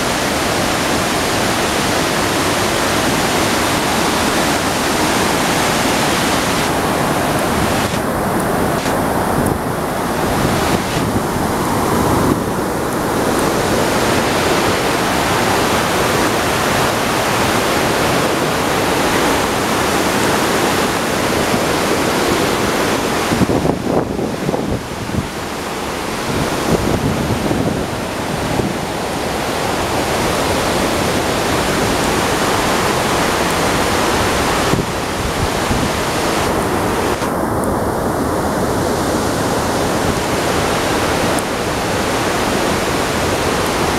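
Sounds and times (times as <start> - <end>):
waterfall roaring: 0.0 - 43.9.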